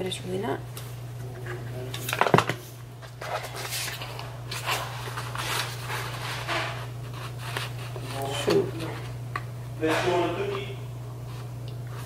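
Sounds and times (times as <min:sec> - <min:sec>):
steady low hum: 0:00.0 - 0:12.0
paper card rustling: 0:03.0 - 0:09.0.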